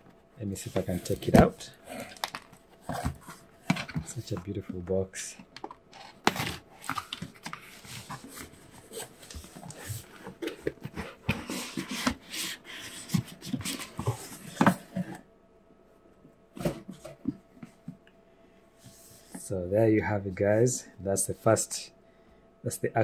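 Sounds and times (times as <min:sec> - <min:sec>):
cardboard box rustling and scraping: 0:00.6 - 0:04.4, 0:05.9 - 0:15.2.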